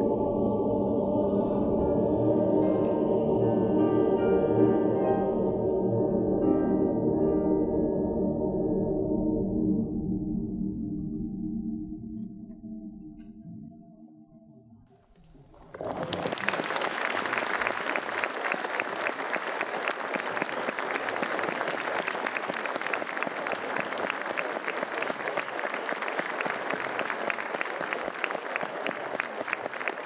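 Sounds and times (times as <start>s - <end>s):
audience applauding: 15.2s - 30.0s.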